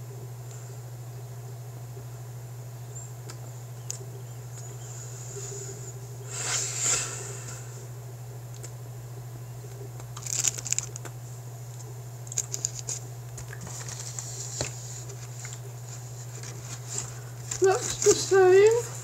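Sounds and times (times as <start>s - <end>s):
steady low hum: 0.0s - 19.0s
plastic wrapper crinkling: 10.0s - 11.2s, 12.2s - 19.0s.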